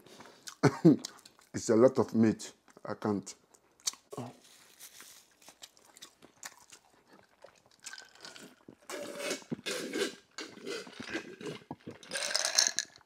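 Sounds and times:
man drinking from glass jar: 0:06.6 - 0:13.0.

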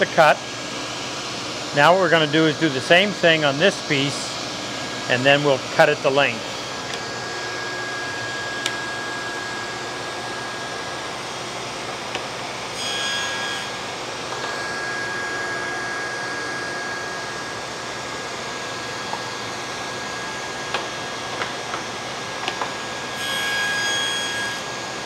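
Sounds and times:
table saw motor whining: 0:06.1 - 0:25.0.

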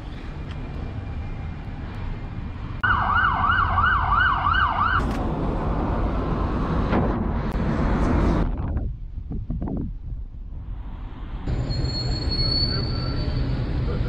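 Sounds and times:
traffic rumble: 0:00.0 - 0:14.0
emergency siren yelping: 0:02.8 - 0:05.0.

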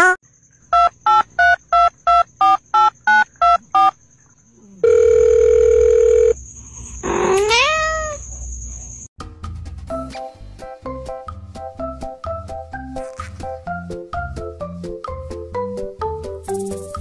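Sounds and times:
cat meowing: 0:07.2 - 0:08.2.

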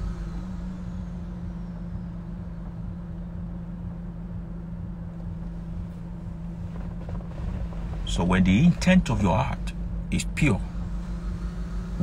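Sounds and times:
car cabin hum: 0:00.0 - 0:12.0.

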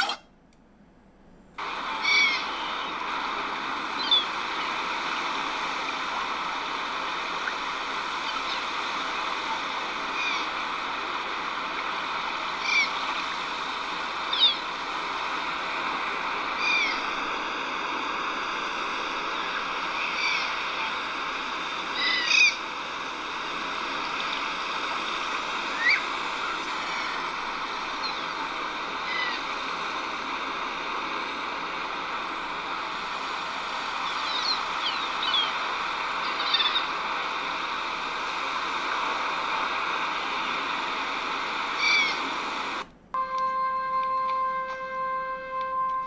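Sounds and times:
surf and wind: 0:01.6 - 0:46.0
bird calls: 0:04.0 - 0:04.8, 0:12.6 - 0:13.1, 0:19.4 - 0:20.7, 0:25.8 - 0:26.1, 0:29.0 - 0:29.4, 0:34.0 - 0:35.6, 0:36.2 - 0:37.0, 0:41.7 - 0:42.2.

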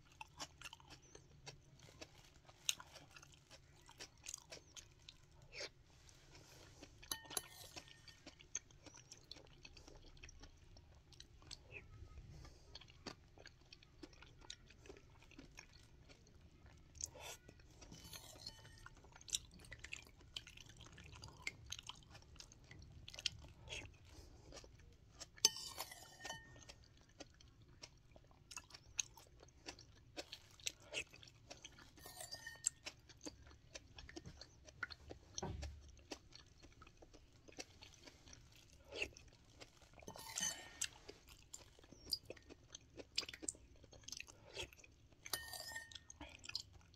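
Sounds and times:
close-up chewing: 0:00.0 - 0:46.9
spoon clinking against bowl: 0:07.1 - 0:08.0, 0:25.4 - 0:26.7, 0:32.0 - 0:32.7, 0:45.3 - 0:46.0.

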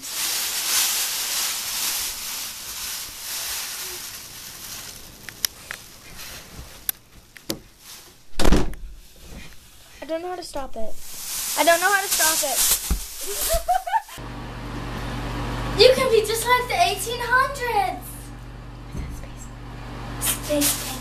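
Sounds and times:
foil blanket crinkling: 0:00.0 - 0:08.3, 0:10.8 - 0:14.2, 0:20.3 - 0:21.0
loud bump: 0:08.3 - 0:08.9.

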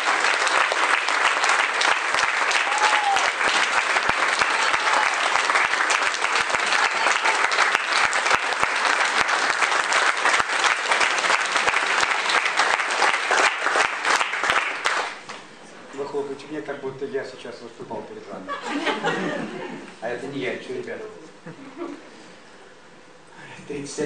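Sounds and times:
crowd applauding: 0:00.0 - 0:15.3.

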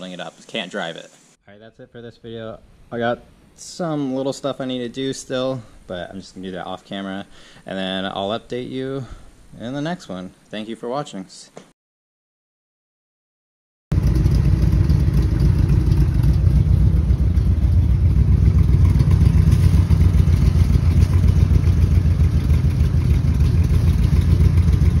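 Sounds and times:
car engine idling: 0:13.9 - 0:25.0.

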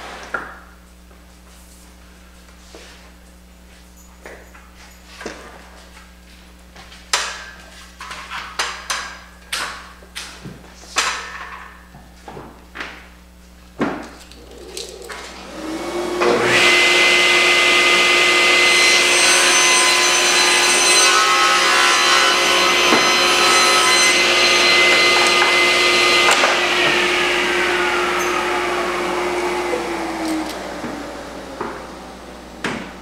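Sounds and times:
table saw running: 0:14.2 - 0:33.0.

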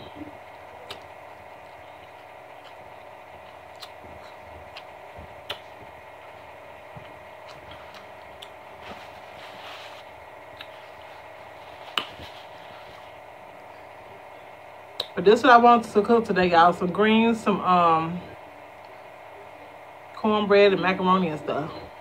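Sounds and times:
steady background hum: 0:00.0 - 0:22.0
chewing and smacking: 0:00.4 - 0:08.8, 0:10.4 - 0:13.7
fingers picking at food: 0:00.8 - 0:05.9, 0:10.5 - 0:13.7.

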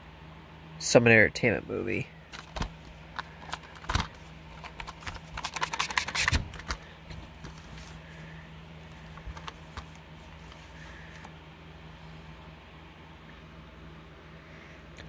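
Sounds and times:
plastic cases clicking and clattering: 0:02.3 - 0:08.0, 0:09.0 - 0:10.6.

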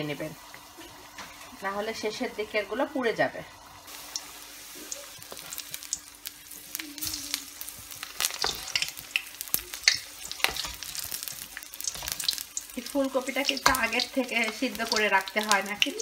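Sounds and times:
deep-frying sizzle and pops: 0:00.0 - 0:16.0
spatula stirring in wok: 0:07.8 - 0:15.8.

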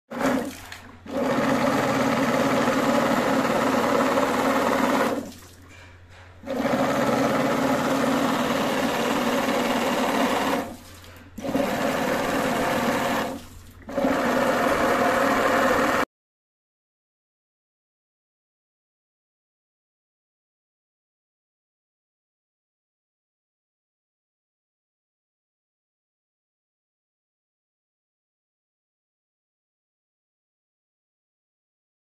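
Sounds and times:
water pump motor whining: 0:00.1 - 0:16.1.

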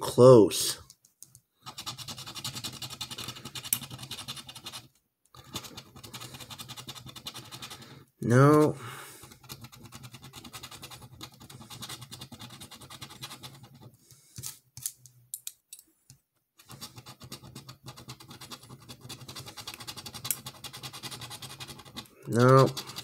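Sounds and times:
metal scraping scratch-off ticket: 0:08.3 - 0:13.8, 0:16.6 - 0:23.0.

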